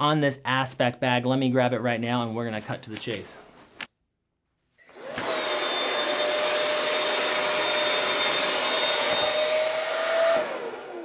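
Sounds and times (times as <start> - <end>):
electric fan whining: 4.9 - 11.0.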